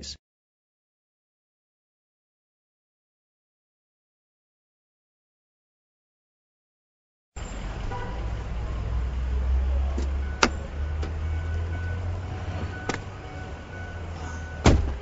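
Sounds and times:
diesel truck engine rumbling: 7.4 - 15.0.

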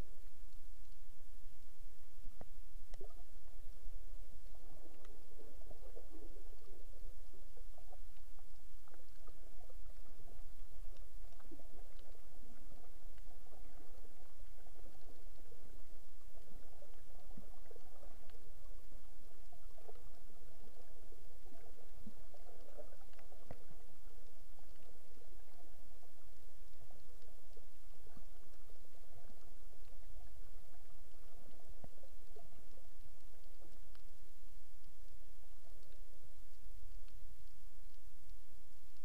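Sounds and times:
muffled underwater rumble: 0.0 - 39.0
small clicks and pops: 0.2 - 39.0.

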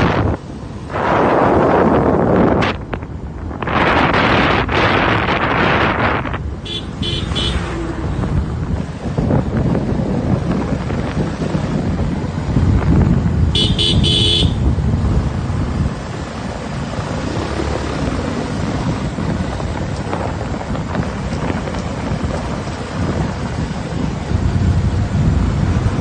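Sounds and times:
moving vehicle road noise: 0.0 - 26.0
wind buffeting microphone: 0.0 - 26.0
horn short beeps: 13.6 - 14.6.

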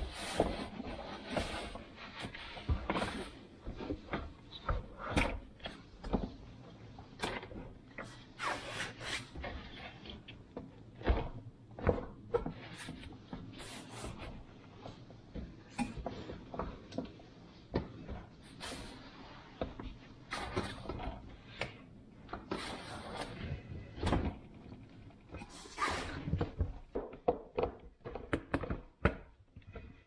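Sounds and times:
plastic knocks clicks and rubbing: 26.2 - 30.0.

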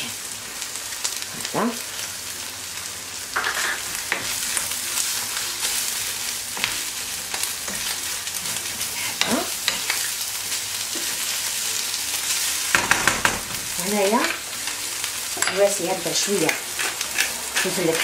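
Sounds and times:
food sizzling in a frying pan: 0.0 - 18.0
wooden spoon scraping a pan: 15.5 - 18.0.

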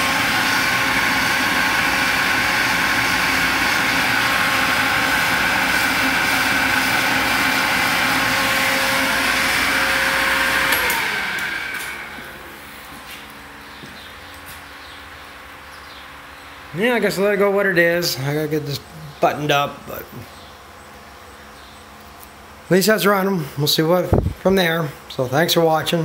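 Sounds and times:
electric pump motor humming: 0.0 - 14.3.

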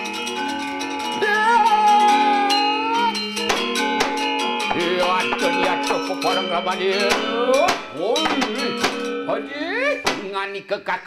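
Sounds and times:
metallophone ensemble playing: 0.0 - 10.4
sharp wooden knocks: 3.4 - 4.2, 7.1 - 9.1, 10.0 - 10.4.

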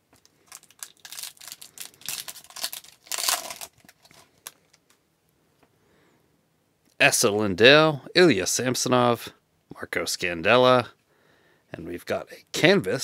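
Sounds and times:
card wrapper crinkling: 0.1 - 5.0.

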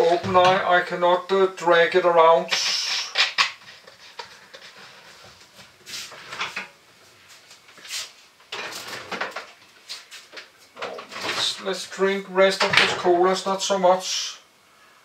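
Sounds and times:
objects scraping and rustling: 2.5 - 12.0.

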